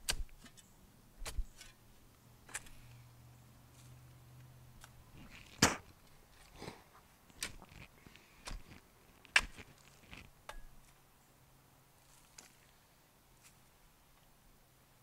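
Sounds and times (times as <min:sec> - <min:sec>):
spade chopping into soil: 0:00.0 - 0:01.8, 0:02.4 - 0:02.8, 0:04.8 - 0:06.0, 0:07.3 - 0:11.0.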